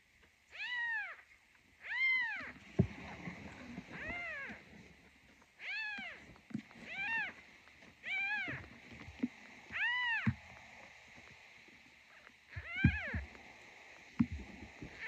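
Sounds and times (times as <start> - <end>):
kitten mewing: 9.7 - 10.4, 12.6 - 13.2.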